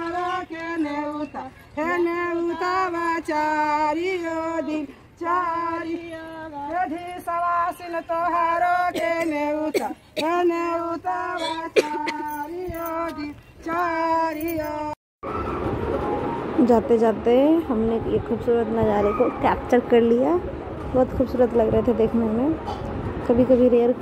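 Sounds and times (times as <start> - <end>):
woman singing: 0.0 - 15.0.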